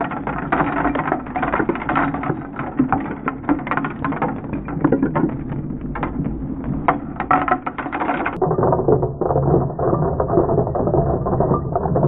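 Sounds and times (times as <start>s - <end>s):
plastic bricks clattering on boards: 0.0s - 8.4s.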